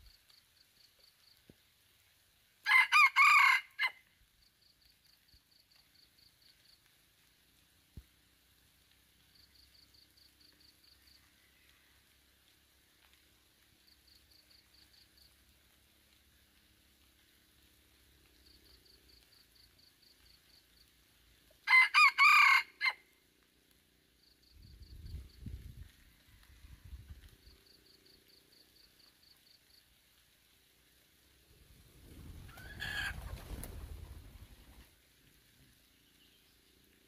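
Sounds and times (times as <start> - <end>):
faint high insect pulses: 0.0 - 2.8, 3.4 - 21.7, 22.4 - 37.0
rooster crowing: 2.6 - 4.1, 21.6 - 23.0.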